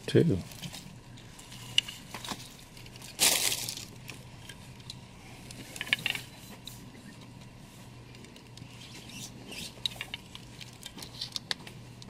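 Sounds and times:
plastic bag rustling: 0:00.4 - 0:04.2.

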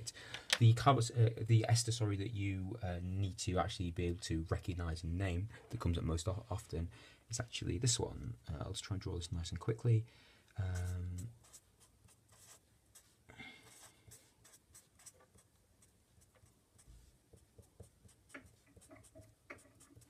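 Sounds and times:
marker scratching on paper: 0:10.8 - 0:20.0.

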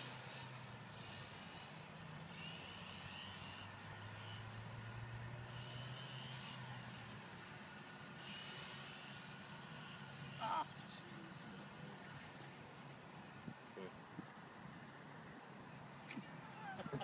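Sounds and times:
model airplane motor droning: 0:00.0 - 0:12.7.

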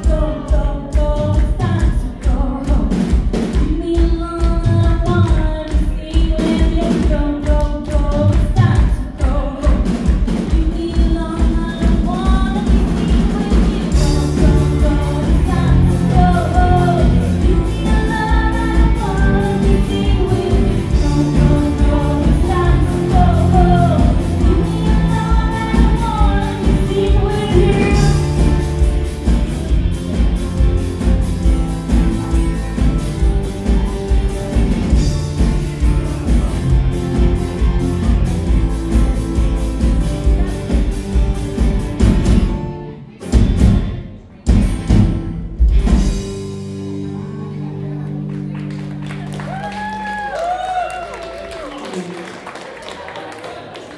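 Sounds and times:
woman singing: 0:00.0 - 0:28.7
drum kit beat: 0:00.0 - 0:47.2
acoustic and electric guitars: 0:00.0 - 0:52.3
bass guitar: 0:10.0 - 0:51.6.

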